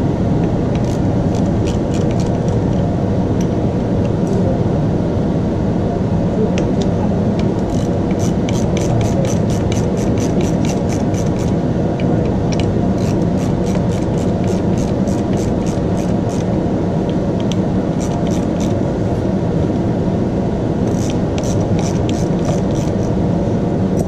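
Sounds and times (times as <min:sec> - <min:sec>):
steady low hum: 0:00.0 - 0:24.0
ratchet wrench clicking: 0:00.7 - 0:02.6, 0:07.6 - 0:11.6, 0:12.5 - 0:16.5, 0:17.4 - 0:18.8, 0:20.9 - 0:23.2.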